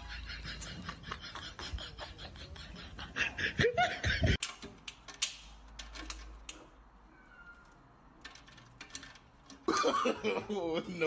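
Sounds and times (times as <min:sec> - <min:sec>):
person laughing: 0:00.0 - 0:04.4, 0:09.7 - 0:11.0.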